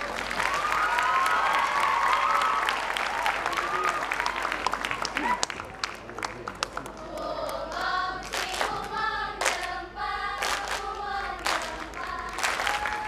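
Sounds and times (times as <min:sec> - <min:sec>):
sharp claps: 0:00.0 - 0:09.7, 0:10.4 - 0:13.0
group singing in unison: 0:07.1 - 0:13.0.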